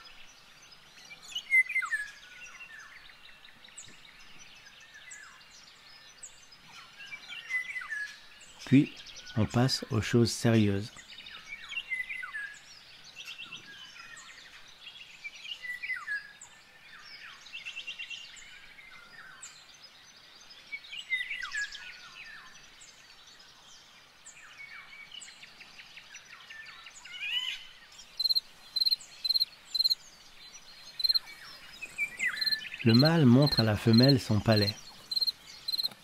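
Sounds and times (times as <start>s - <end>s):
small birds singing: 0.0s - 36.0s
insect chirping: 28.0s - 36.0s.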